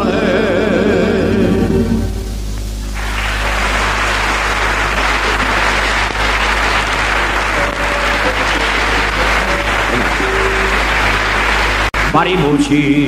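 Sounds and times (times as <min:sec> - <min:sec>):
steady low hum: 0:00.0 - 0:13.0
audience applauding: 0:02.8 - 0:13.0.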